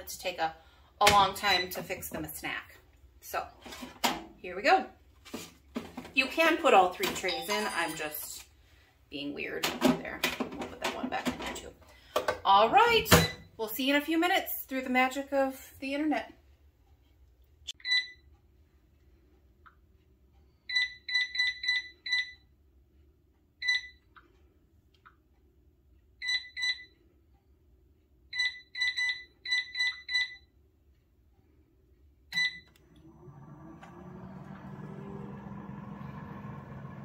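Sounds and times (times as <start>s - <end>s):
control panel beeps: 17.8s - 18.3s, 26.2s - 27.0s
fan humming: 32.4s - 37.0s.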